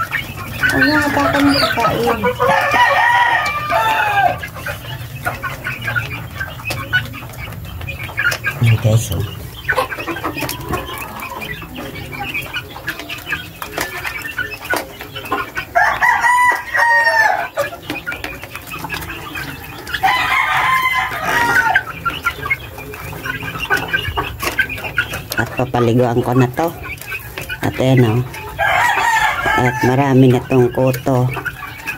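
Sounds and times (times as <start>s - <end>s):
beaks pecking at feeder tray: 0.0s - 31.9s
chickens clucking and calling: 0.0s - 31.9s
young rooster crowing: 0.9s - 4.4s, 15.8s - 17.6s, 20.0s - 21.9s, 28.6s - 30.1s.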